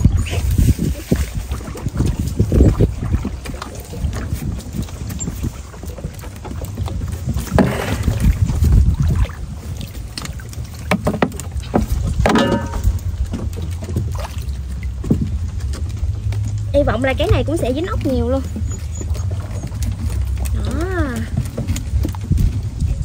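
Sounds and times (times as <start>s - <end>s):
water sloshing and splashing: 0.0s - 23.0s
wind rumble on microphone: 0.0s - 23.0s
knocks: 12.2s - 12.8s.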